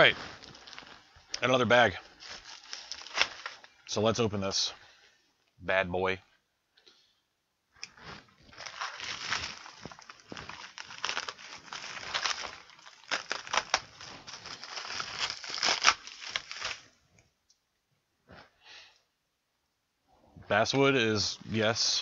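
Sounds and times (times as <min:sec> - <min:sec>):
packaging bag tearing and crinkling: 0:00.0 - 0:01.2, 0:02.2 - 0:03.7, 0:07.9 - 0:16.9.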